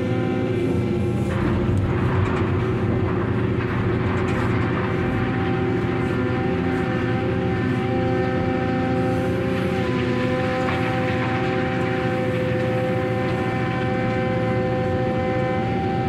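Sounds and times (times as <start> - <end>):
excavator engine and hydraulics whining: 0.0 - 16.0.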